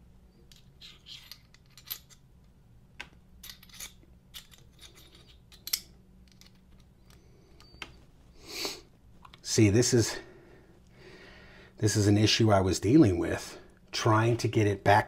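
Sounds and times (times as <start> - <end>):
small metal clicks and scrapes: 0.5 - 2.2, 3.4 - 7.8.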